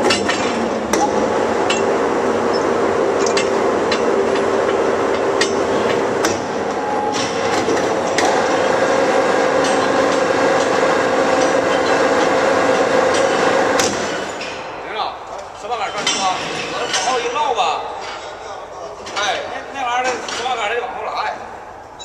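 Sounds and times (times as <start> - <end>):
tools clanking on steel: 0.0 - 2.0
machinery humming: 0.0 - 15.6.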